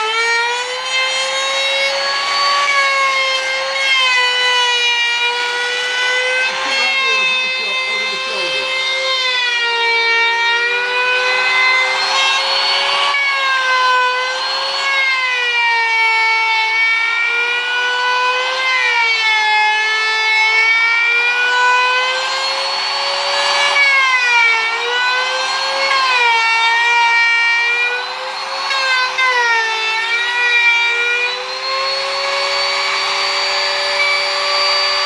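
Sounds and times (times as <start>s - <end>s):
router whining cutting wood: 0.0s - 35.0s.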